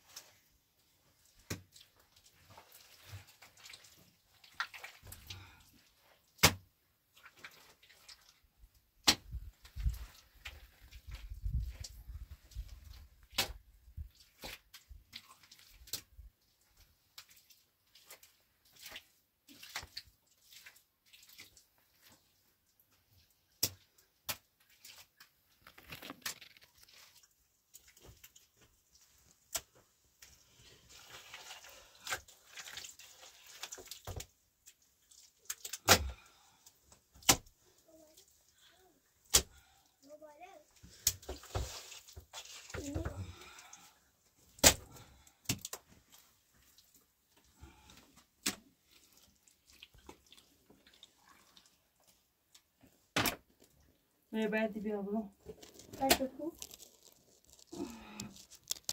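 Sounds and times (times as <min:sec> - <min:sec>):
rustling: 0:55.4 - 0:58.9.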